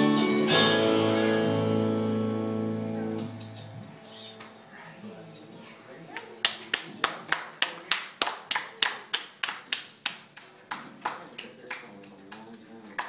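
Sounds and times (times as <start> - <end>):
hands clapping in applause: 6.2 - 13.0.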